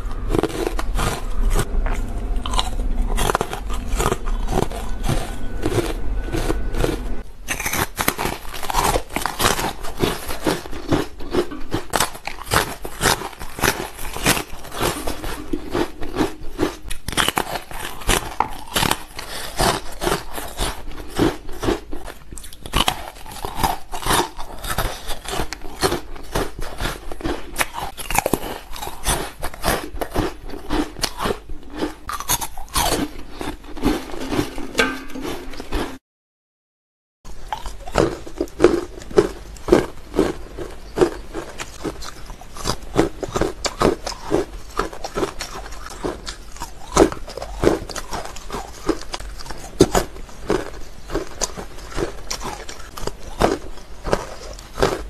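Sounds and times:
low hum: 0.0 - 7.8, 14.4 - 17.7, 33.0 - 36.0
ice crunching in mouth: 0.0 - 36.0, 37.4 - 55.0.

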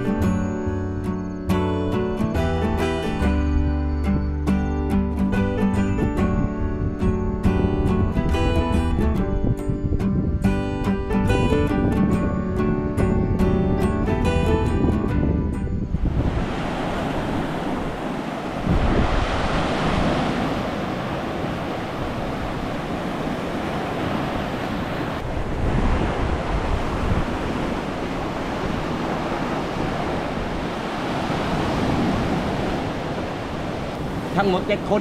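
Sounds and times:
wind rumbling on microphone: 3.0 - 35.0
small waves breaking on beach: 16.1 - 35.0.

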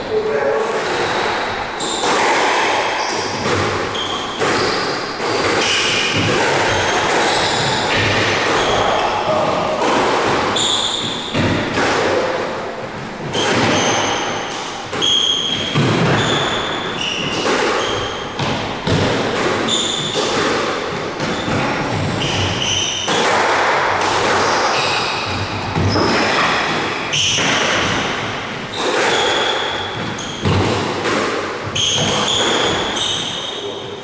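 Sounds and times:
ball hitting court walls: 0.6 - 33.6
squash ball struck by rackets: 0.6 - 33.6
shoes squeaking on wooden floor: 0.9 - 2.4, 3.0 - 6.0, 10.4 - 11.7, 12.9 - 23.1, 28.7 - 30.7, 31.7 - 33.9.

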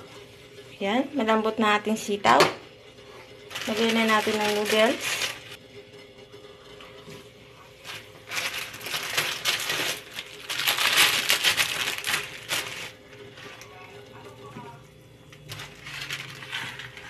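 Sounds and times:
plastic packet crinkling: 3.5 - 5.6, 7.8 - 13.7, 15.5 - 17.0.

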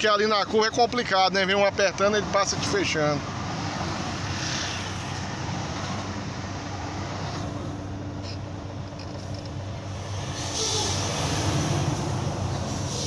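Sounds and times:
road noise: 0.0 - 13.0
hiss: 10.0 - 13.0.

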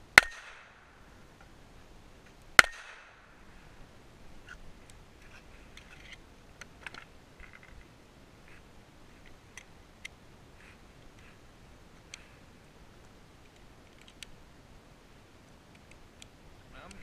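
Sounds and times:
pistol shot with echo: 0.2 - 0.9, 2.6 - 3.3.

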